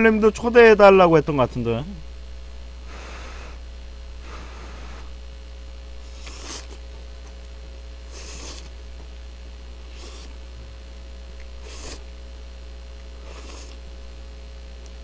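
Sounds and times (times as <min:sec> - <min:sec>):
steady electrical hum: 0:00.0 - 0:15.0
noodles slurped: 0:06.1 - 0:06.8, 0:08.1 - 0:08.8, 0:09.9 - 0:10.4, 0:11.4 - 0:12.1, 0:13.2 - 0:13.8.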